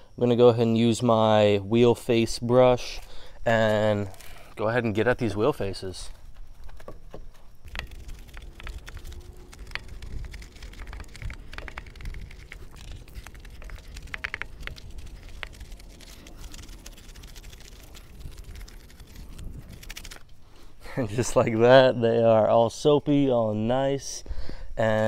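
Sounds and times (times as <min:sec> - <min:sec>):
low steady rumble: 0:07.5 - 0:21.4
brush scrubbing wheel: 0:07.6 - 0:20.3
brush clicking against rim: 0:07.7 - 0:20.2.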